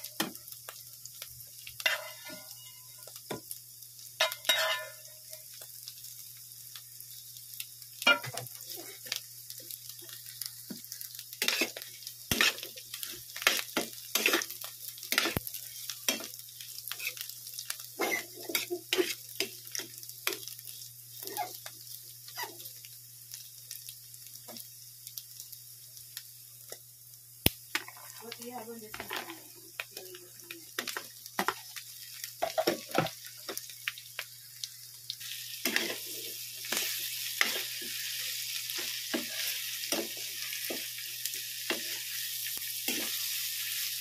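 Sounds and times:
meat and onions sizzling in pan: 0.0s - 44.0s
metal utensil scraping a pan: 1.8s - 2.8s, 4.2s - 5.0s, 18.0s - 19.5s.

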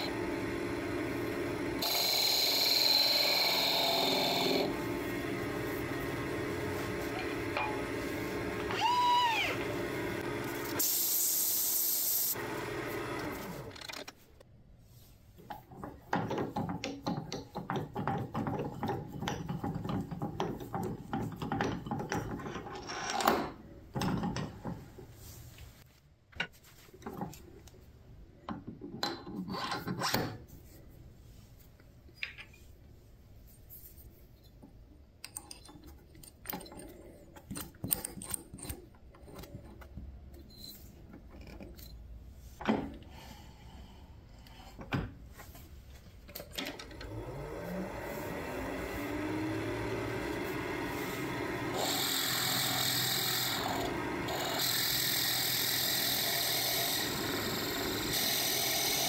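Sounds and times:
metal clicks and knocks: 15.5s - 24.9s.

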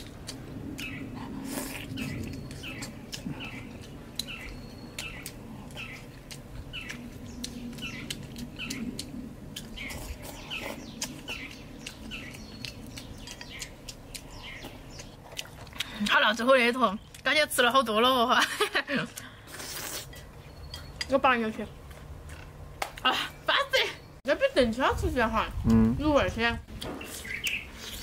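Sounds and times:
chewing and lip-smacking: 0.0s - 17.7s, 21.8s - 23.1s
bird chirping: 0.8s - 1.1s, 1.9s - 15.2s, 20.3s - 21.9s, 26.2s - 28.0s.

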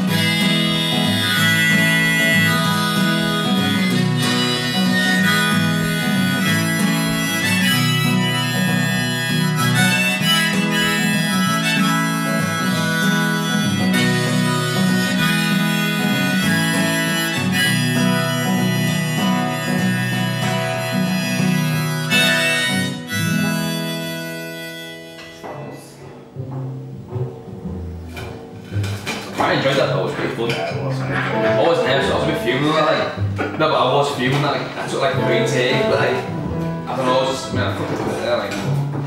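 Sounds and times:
harmonica solo: 0.0s - 26.0s, 31.2s - 33.3s, 34.9s - 37.6s
strummed acoustic guitar: 0.0s - 39.0s.

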